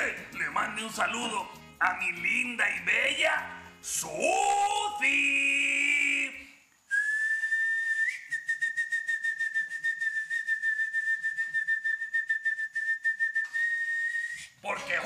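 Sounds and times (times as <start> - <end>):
high fluttering whistle: 6.9 - 14.6.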